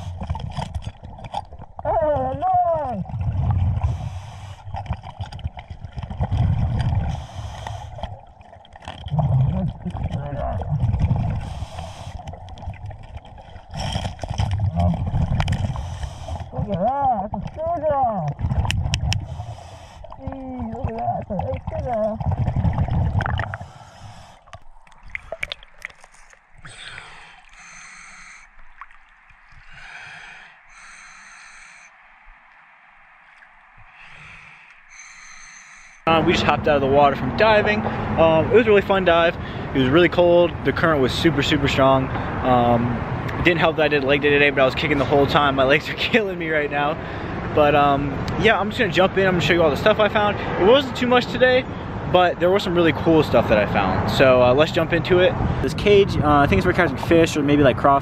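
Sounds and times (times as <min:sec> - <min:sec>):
regulator bubbles exhaling underwater: 0:02.8 - 0:31.7
hiss of inhalation: 0:11.4 - 0:12.2, 0:19.2 - 0:20.1, 0:26.7 - 0:28.5, 0:29.7 - 0:31.9, 0:34.0 - 0:36.0.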